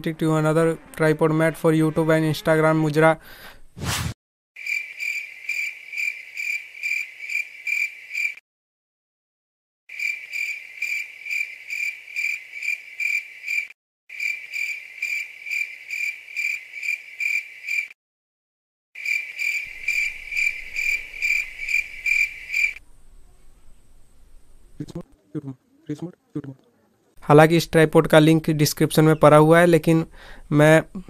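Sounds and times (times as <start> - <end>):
cricket chirping: 4.6 - 8.4, 9.9 - 18.0, 19.0 - 24.9.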